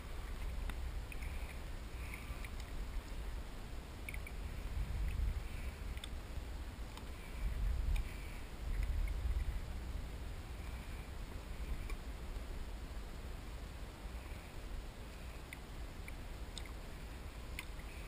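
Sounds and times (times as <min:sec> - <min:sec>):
water rumbling around kayak: 0:00.0 - 0:18.0
faint ticks: 0:00.2 - 0:03.2, 0:04.0 - 0:06.2, 0:06.9 - 0:09.6, 0:10.6 - 0:12.6, 0:14.2 - 0:18.0.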